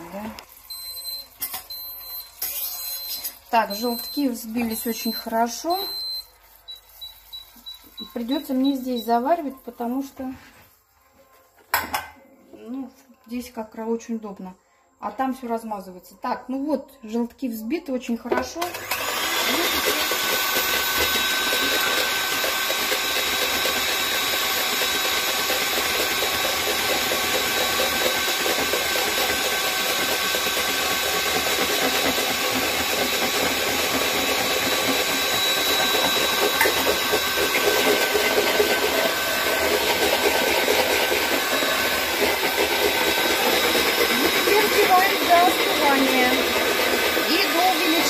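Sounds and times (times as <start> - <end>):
electric hand mixer whining: 2.4 - 9.8, 18.6 - 48.0.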